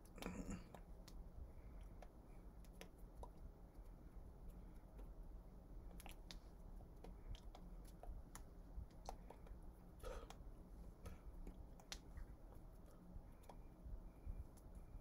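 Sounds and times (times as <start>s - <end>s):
hands clicking and brushing: 5.8s - 13.7s.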